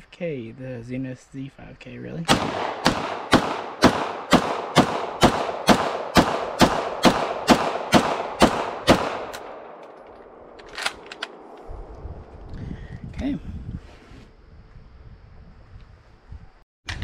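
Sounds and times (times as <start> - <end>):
gunshots with echo: 2.3 - 10.4.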